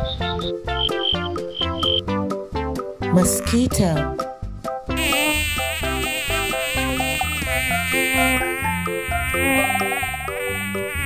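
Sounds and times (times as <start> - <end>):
mosquito whining buzz: 5.0 - 11.0.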